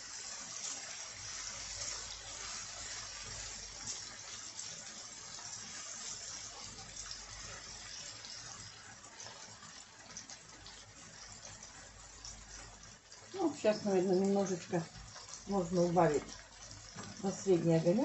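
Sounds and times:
vegetables sizzling in a frying pan: 0.0s - 18.0s.

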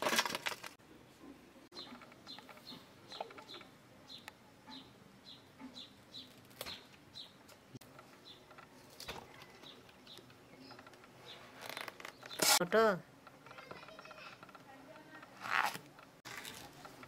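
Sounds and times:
small bird chirping: 1.7s - 7.4s, 8.0s - 12.6s.

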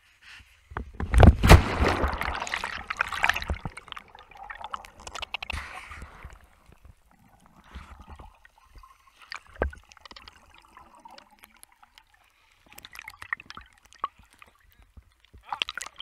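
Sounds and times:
water gurgling and sloshing: 0.8s - 16.0s
bubble clicks: 1.1s - 6.4s.

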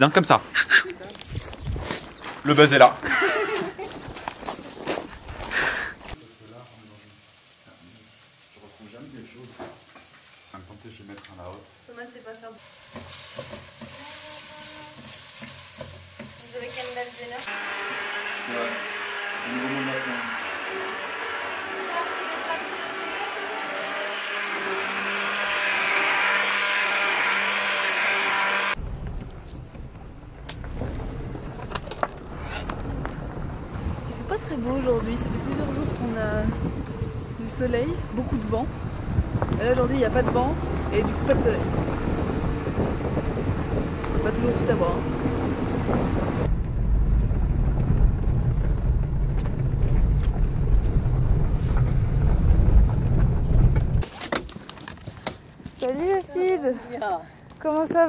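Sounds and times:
immersion blender whirring: 17.4s - 28.8s
low rumble: 28.8s - 54.0s.

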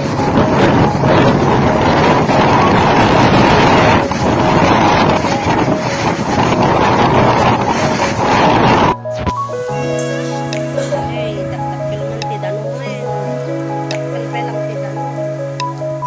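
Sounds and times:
wind buffeting microphone: 0.0s - 9.7s
floodwater rushing: 0.0s - 16.0s.

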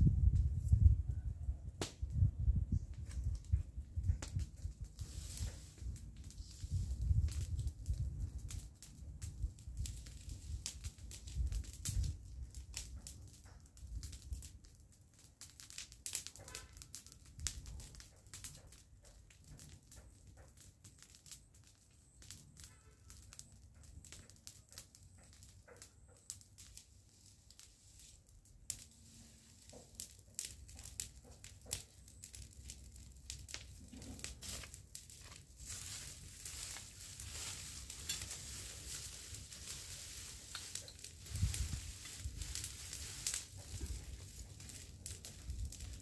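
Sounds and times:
dry grass and leaves crackling: 0.1s - 46.0s
dry leaves rustling by hand: 2.2s - 46.0s.

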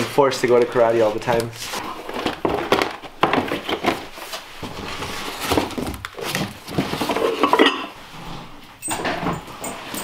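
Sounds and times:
hard objects clattering in box: 1.4s - 8.0s.

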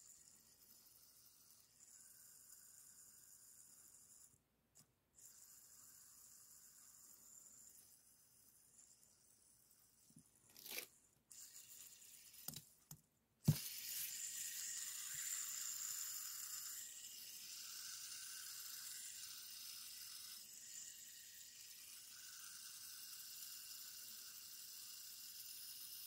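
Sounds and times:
fidget spinner clicking: 10.6s - 26.0s
spinner bearing whirring: 13.5s - 26.0s.

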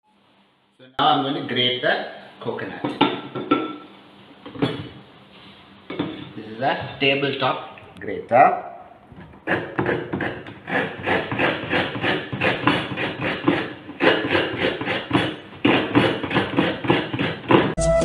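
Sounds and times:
coconut grater rasping: 9.4s - 17.8s.

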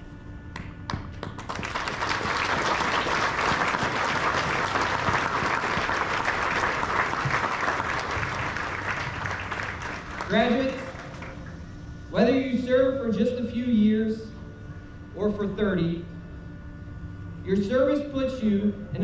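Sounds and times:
audience applauding: 1.2s - 11.6s.

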